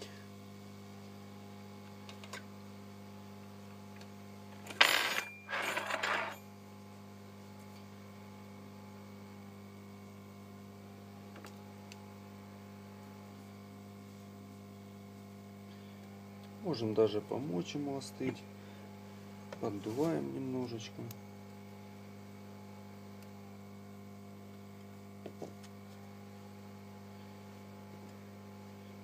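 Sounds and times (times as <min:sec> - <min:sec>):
low electrical hum: 0:00.0 - 0:29.0.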